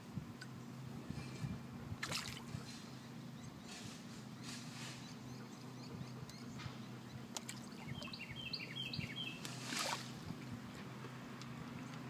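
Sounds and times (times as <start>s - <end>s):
sharp splashes: 2.0s - 2.5s, 9.4s - 10.2s
small water splashes: 2.0s - 2.5s, 7.3s - 8.2s, 9.4s - 10.2s.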